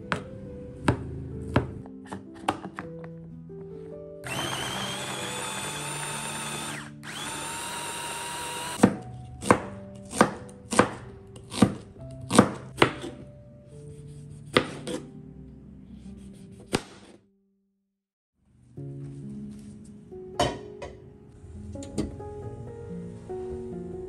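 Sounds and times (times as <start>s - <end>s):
electric food chopper running: 4.2s - 8.8s
knife chopping on plastic board: 8.8s - 13.2s, 14.5s - 15.0s, 16.6s - 17.2s.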